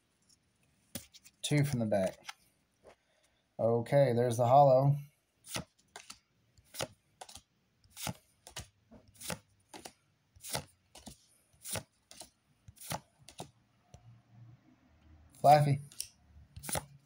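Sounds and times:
trading cards clicking: 0:05.5 - 0:13.5, 0:15.6 - 0:17.0.

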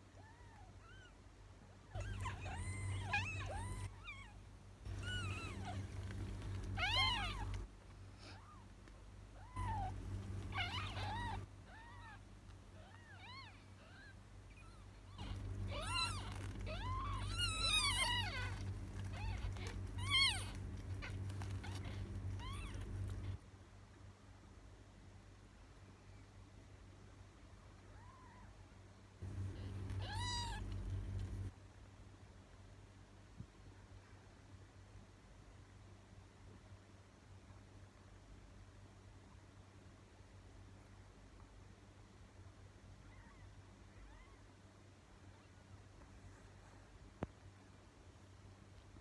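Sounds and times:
kittens mewing: 0:01.9 - 0:08.7, 0:09.4 - 0:23.4, 0:29.2 - 0:31.5.

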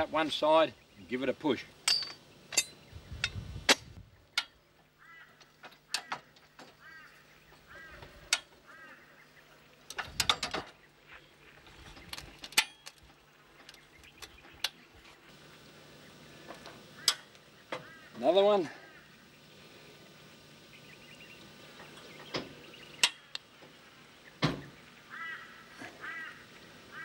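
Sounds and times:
jack metal clanks: 0:01.8 - 0:02.8.

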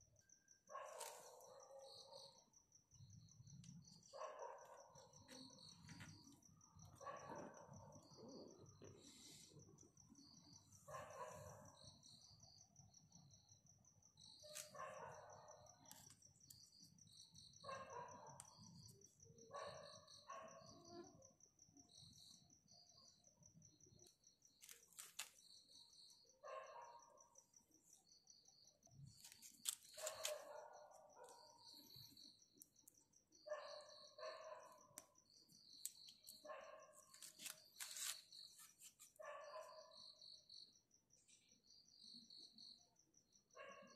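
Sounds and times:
high insect trill: 0:00.0 - 0:43.2.

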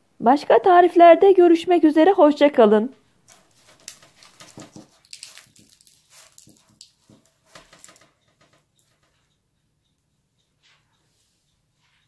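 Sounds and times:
flaky pastry crackling: 0:03.2 - 0:08.9.

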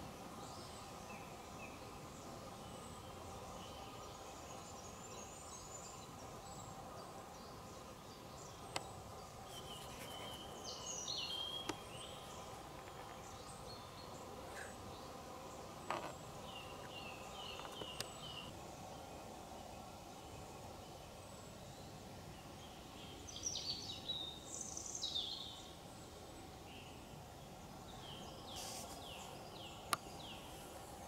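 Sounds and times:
small birds chirping: 0:00.0 - 0:31.0
short rustle: 0:28.5 - 0:29.2.

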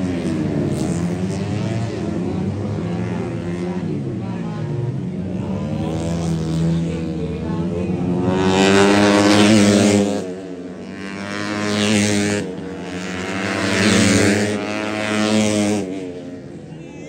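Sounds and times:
racing motorcycles passing: 0:00.0 - 0:17.0.

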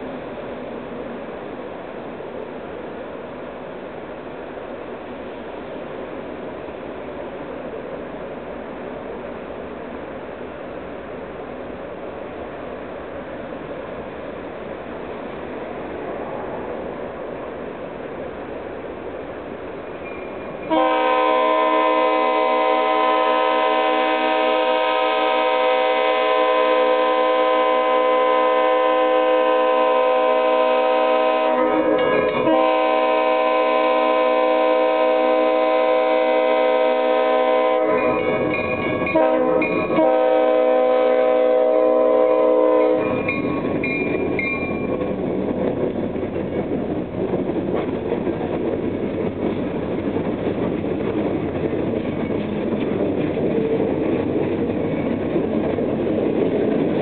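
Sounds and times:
locomotive air horn blasts: 0:20.7 - 0:38.4, 0:39.1 - 0:43.2.

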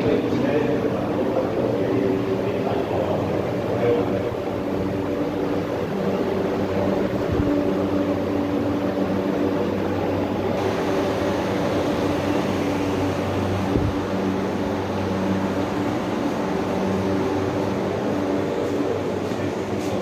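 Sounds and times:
air-handling machinery drone: 0:00.0 - 0:20.0.

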